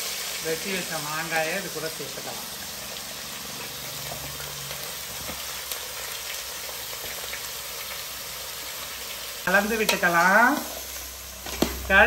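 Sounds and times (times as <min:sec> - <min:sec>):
oil sizzling in a pan: 0:00.0 - 0:12.0.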